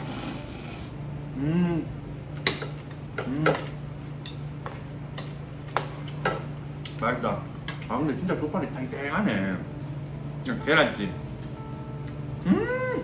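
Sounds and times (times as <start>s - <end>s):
person humming mm: 0.0s - 2.0s, 3.2s - 3.6s, 12.4s - 13.0s.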